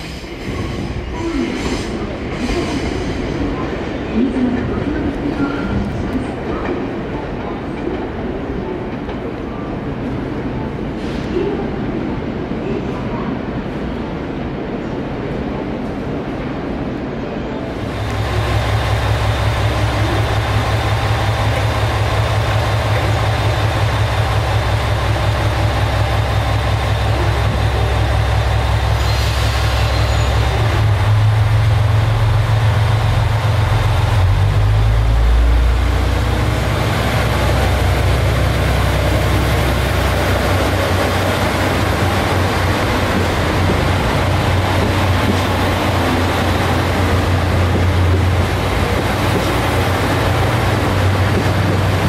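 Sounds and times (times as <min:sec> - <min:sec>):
diesel train engines throbbing: 0:17.7 - 0:52.0.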